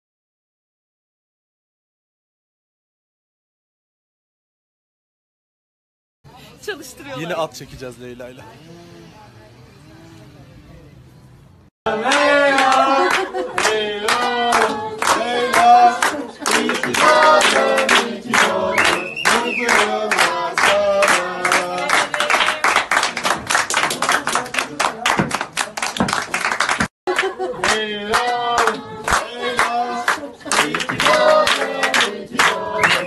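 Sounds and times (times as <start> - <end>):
group of people singing: 11.9 - 23.0, 27.1 - 33.0
people clapping in time: 12.0 - 33.0.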